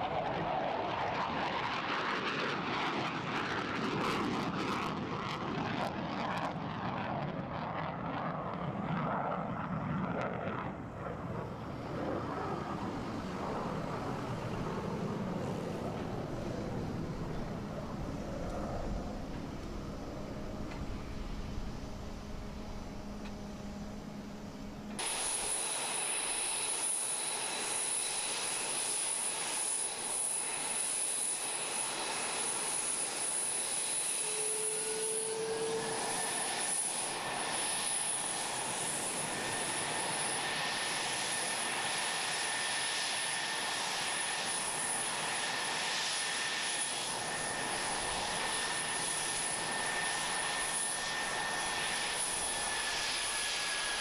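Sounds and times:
jet turbine whine: 0.0 - 54.0
low hum: 10.4 - 25.0
steady high whistle: 25.0 - 42.1.

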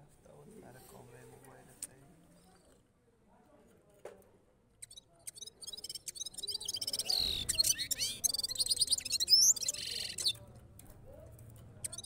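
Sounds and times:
songbird twittering song: 4.8 - 10.5, 11.8 - 12.0.

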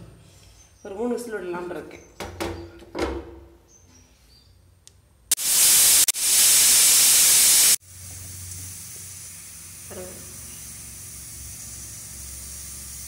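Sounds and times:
pressure cooker whistle hissing: 5.3 - 13.0.

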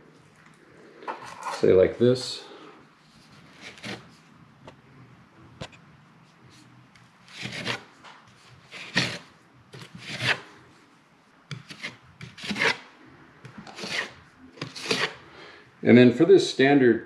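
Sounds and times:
taping knife scraping drywall: 3.2 - 4.2, 7.3 - 10.5, 11.5 - 12.9, 13.5 - 15.2.

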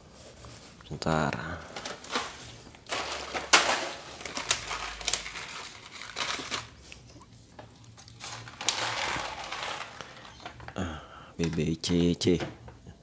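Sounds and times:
foil bag crinkling: 1.5 - 7.0, 7.9 - 11.7.

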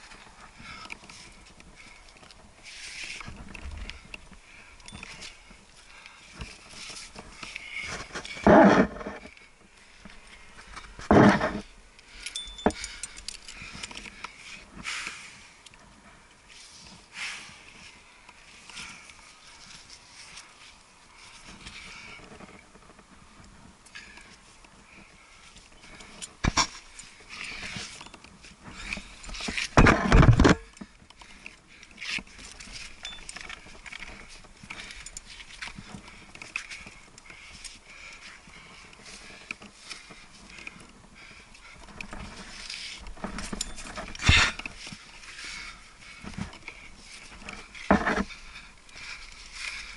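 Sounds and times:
climbing gear clicking and jangling: 0.0 - 14.8, 21.1 - 49.9
person breathing heavily: 0.0 - 22.4, 30.6 - 49.9
loud rough rustle: 6.2 - 9.4, 10.0 - 11.7
scuffs and scrapes against rock: 6.3 - 9.4, 10.1 - 11.7, 42.1 - 49.9.

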